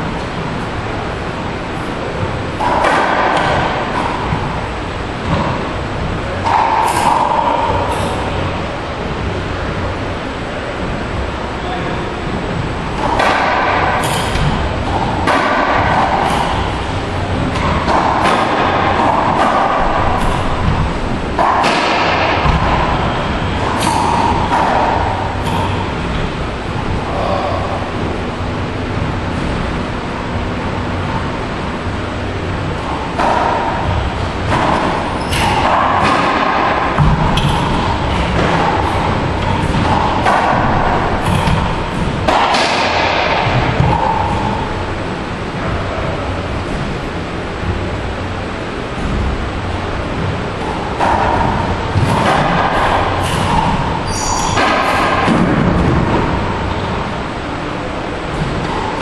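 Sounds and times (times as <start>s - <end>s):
racquetball hits echoing: 0.0s - 10.9s, 12.4s - 59.0s
ball cracking off racquets and walls: 13.0s - 27.5s, 32.9s - 44.9s.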